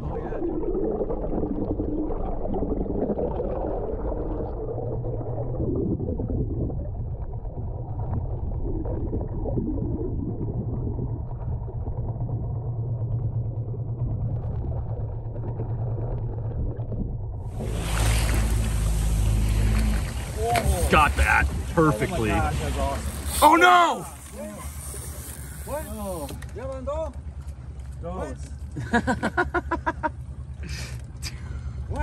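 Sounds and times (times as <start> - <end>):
underwater bubbling and gurgling: 0.0 - 23.3
underwater motor rumble: 0.0 - 32.0.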